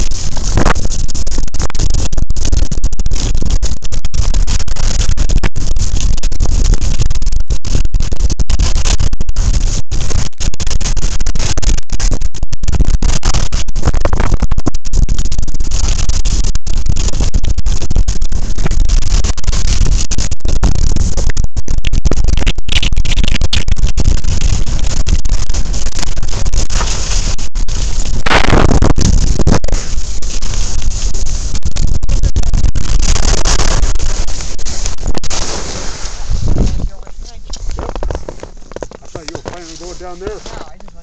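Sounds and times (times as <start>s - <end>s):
wind rushing over microphone: 0.0s - 41.0s
skis scraping over packed snow: 24.3s - 41.0s.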